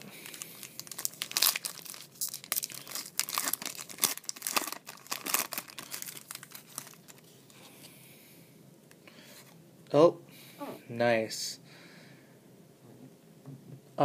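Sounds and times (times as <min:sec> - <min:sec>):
foil wrapper crinkling and tearing: 0:00.0 - 0:07.3.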